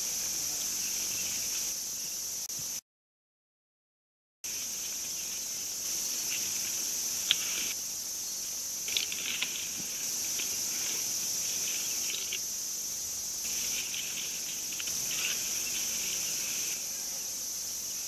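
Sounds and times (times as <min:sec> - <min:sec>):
high-pitched insect chorus: 0:00.0 - 0:02.8, 0:04.4 - 0:18.0
crackles: 0:08.8 - 0:12.4, 0:13.4 - 0:16.8
small clicks and rustles: 0:08.9 - 0:12.4, 0:13.5 - 0:16.2.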